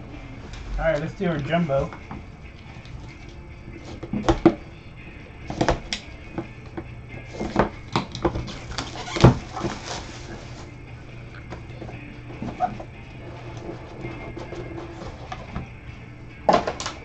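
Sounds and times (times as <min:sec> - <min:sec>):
plastic wrap crinkling: 0:08.6 - 0:10.7.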